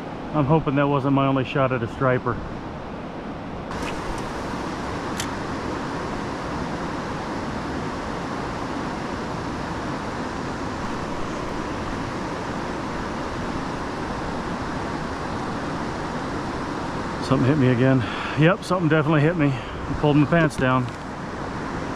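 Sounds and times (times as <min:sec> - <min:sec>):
river rushing over rocks: 0:03.7 - 0:17.3.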